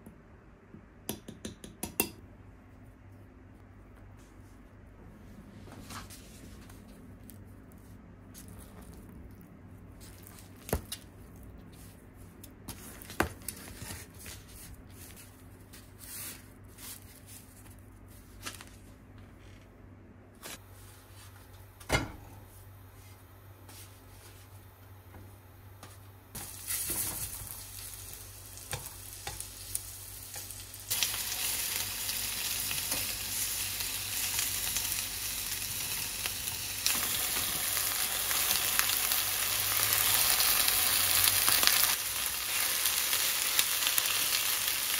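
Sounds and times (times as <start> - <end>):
meat sizzling in hot oil: 26.4 - 44.9.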